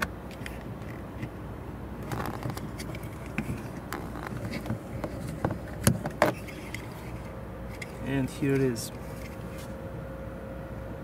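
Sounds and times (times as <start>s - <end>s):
light plastic scraping: 2.0s - 9.8s.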